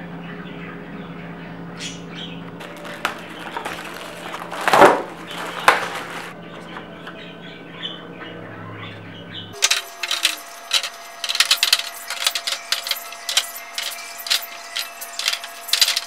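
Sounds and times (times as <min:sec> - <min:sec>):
plastic wrap crinkling and tearing: 0:02.6 - 0:06.4.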